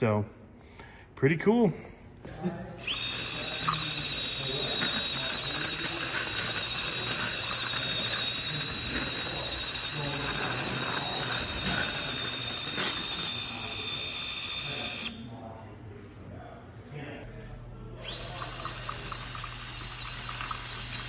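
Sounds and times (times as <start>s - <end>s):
small electric motor whining: 2.8s - 15.2s, 18.0s - 21.0s.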